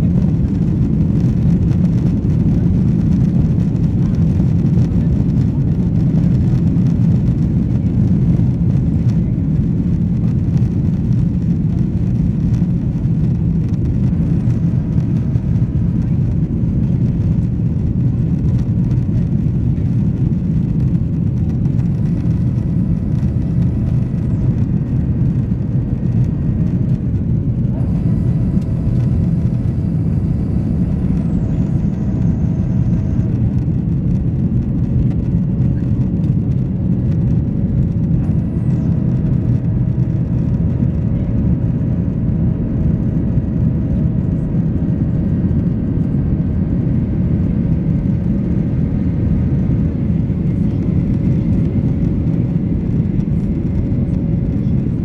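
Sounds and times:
aircraft engine and airflow rumble: 0.0s - 55.0s
faint high whine: 20.8s - 34.0s.

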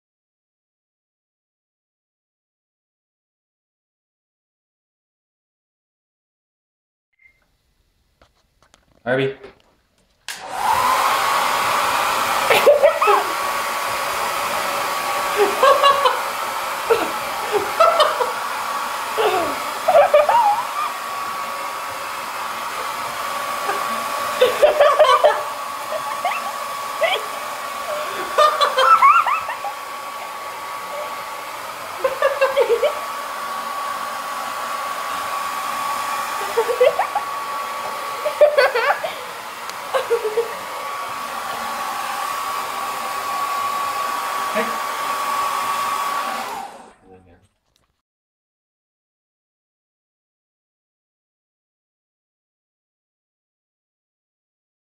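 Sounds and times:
hair dryer blowing: 10.3s - 47.2s.

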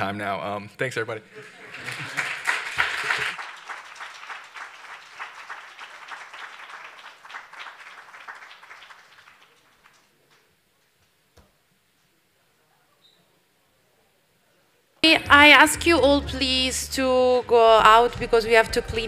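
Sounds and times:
audience applauding: 1.4s - 10.5s.

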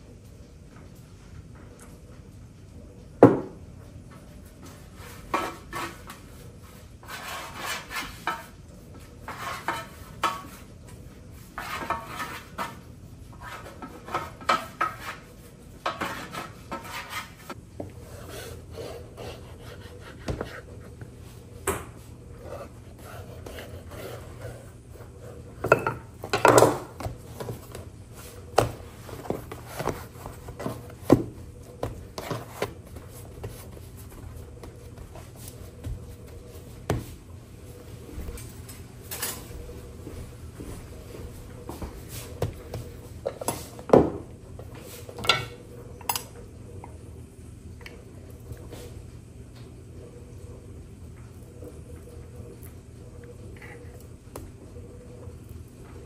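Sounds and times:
pastry brush on metal tray: 4.5s - 21.2s
knife cutting dough on board: 18.7s - 20.7s.

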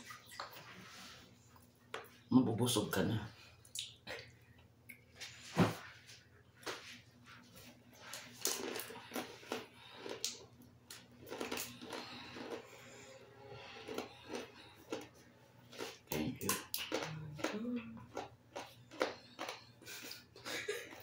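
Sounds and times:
crispy food crunching: 8.0s - 21.0s.

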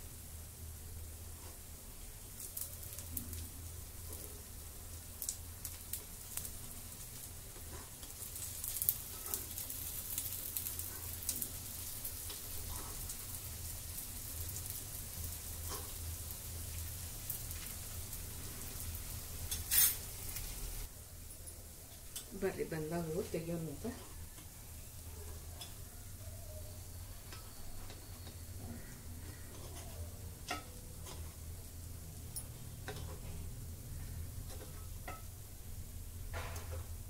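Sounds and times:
food sizzling in ghee: 0.0s - 37.0s
metal spoon scraping pan: 19.5s - 20.1s, 27.2s - 31.4s, 32.4s - 35.3s.

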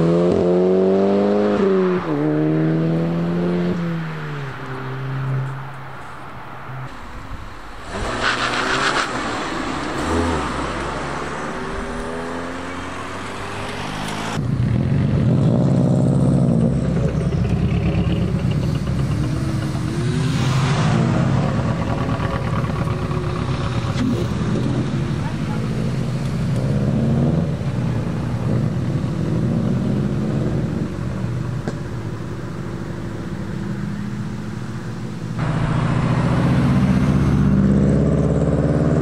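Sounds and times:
car engines revving: 0.0s - 39.0s.

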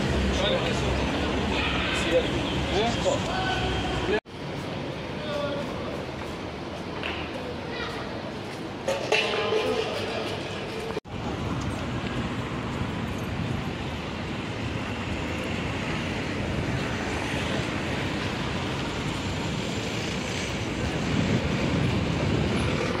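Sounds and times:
city traffic: 0.0s - 23.0s
wind on microphone: 11.1s - 23.0s.

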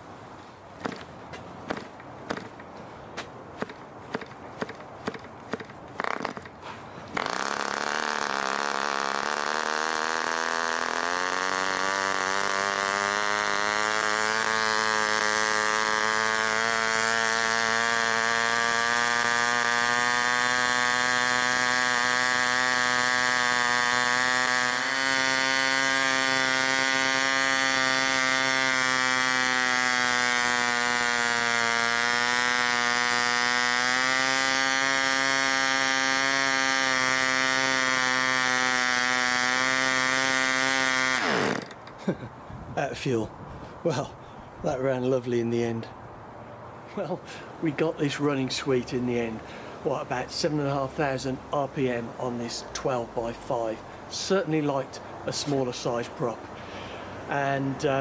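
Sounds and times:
model engine high-pitched buzz: 3.6s - 6.5s, 7.1s - 42.0s.

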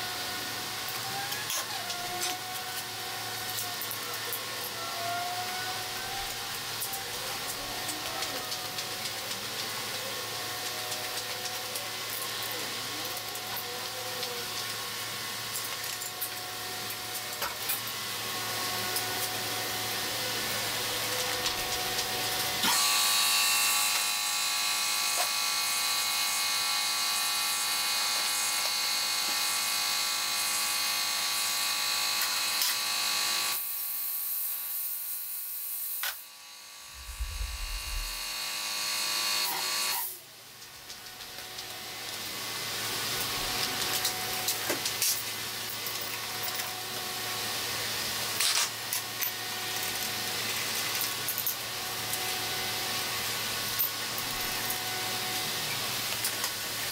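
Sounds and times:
mechanical buzzing hum: 17.8s - 40.2s.

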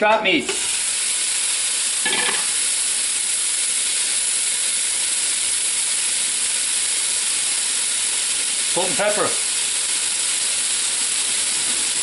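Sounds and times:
meat sizzling in a pot: 0.4s - 12.0s.

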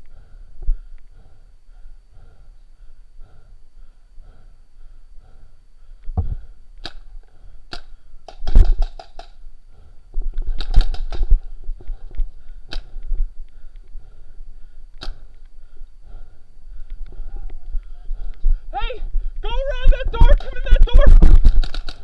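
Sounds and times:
paintball markers firing: 6.8s - 7.1s, 7.7s - 9.4s, 10.6s - 11.5s, 20.3s - 22.0s.

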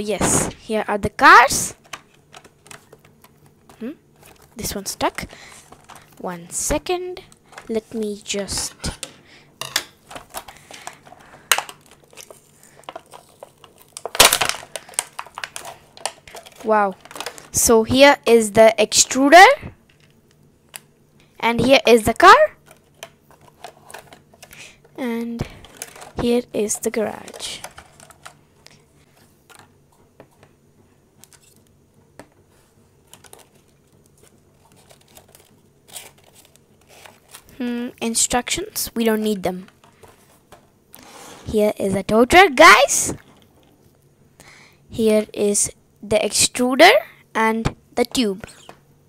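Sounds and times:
plastic packaging crinkling: 1.7s - 6.4s, 9.9s - 17.6s, 22.6s - 24.8s, 25.4s - 29.6s, 32.6s - 37.6s.

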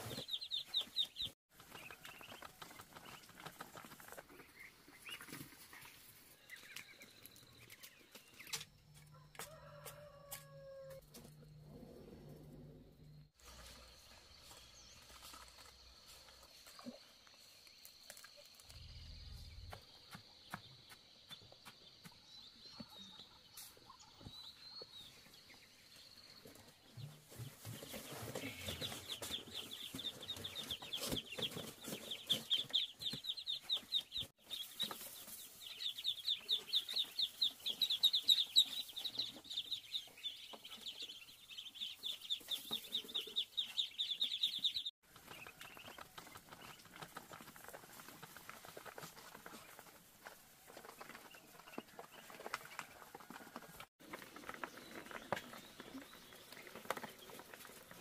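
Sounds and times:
ducklings peeping: 0.0s - 8.6s, 26.4s - 58.0s.

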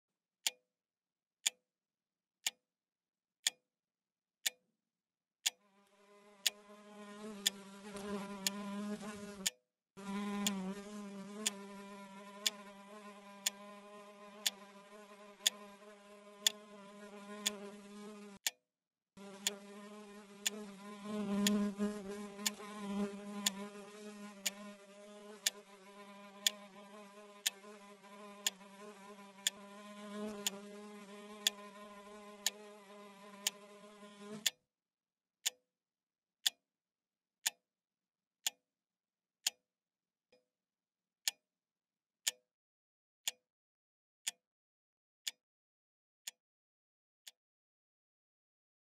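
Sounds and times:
housefly buzzing: 5.7s - 18.5s, 19.2s - 34.5s
clock ticking: 21.4s - 21.7s.

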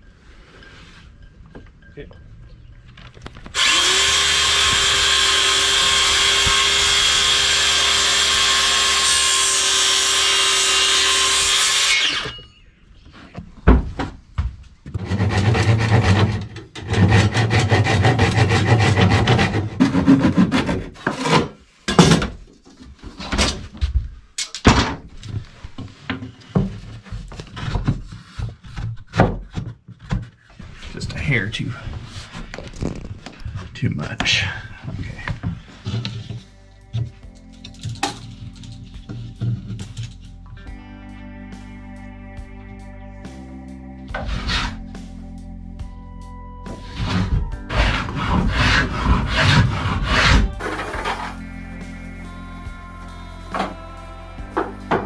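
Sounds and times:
cordless drill drilling into wood: 3.5s - 12.4s
rubbing and knocking on wood: 46.7s - 51.4s.

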